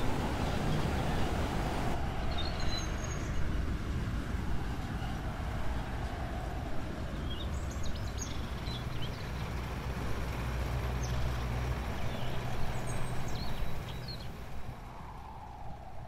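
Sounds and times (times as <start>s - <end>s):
outdoor noise: 0.0s - 16.0s
birds chirping: 11.0s - 14.4s.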